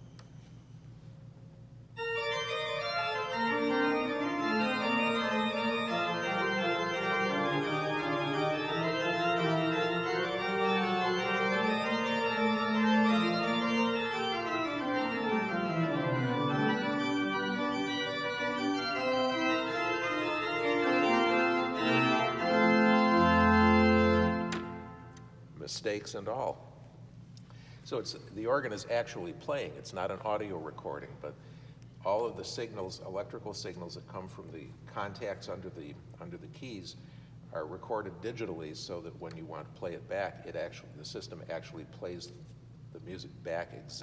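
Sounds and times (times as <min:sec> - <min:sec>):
pipe organ playing: 0:01.9 - 0:25.8.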